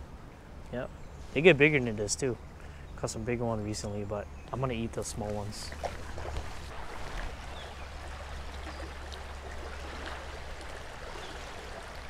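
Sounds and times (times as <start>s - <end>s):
water running over rocks: 4.5s - 12.0s.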